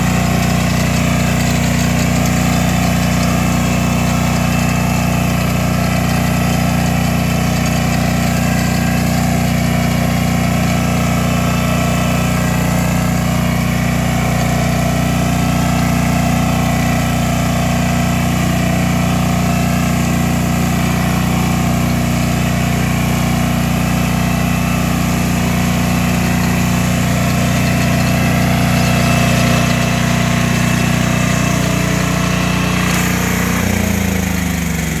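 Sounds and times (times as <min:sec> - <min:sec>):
ridger cutting soil: 0:00.0 - 0:35.0
tractor engine running under load: 0:00.0 - 0:35.0.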